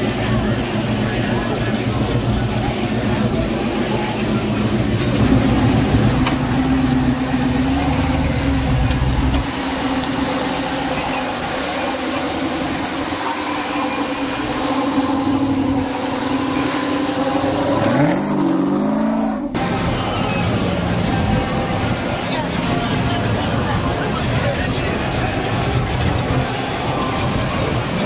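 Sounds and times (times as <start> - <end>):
car engine idling: 0.0 - 28.0.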